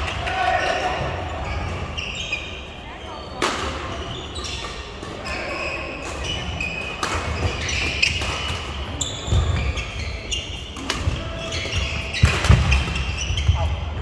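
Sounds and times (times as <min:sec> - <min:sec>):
sneakers squeaking on court floor: 0:00.0 - 0:14.0
racket hitting shuttlecock: 0:10.8 - 0:13.0.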